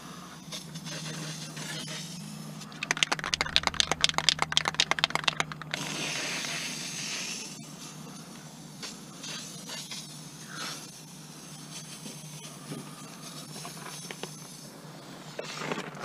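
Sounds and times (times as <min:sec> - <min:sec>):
spray paint hissing from nozzle: 0:02.3 - 0:07.6
spray can mixing ball rattling: 0:02.7 - 0:06.6.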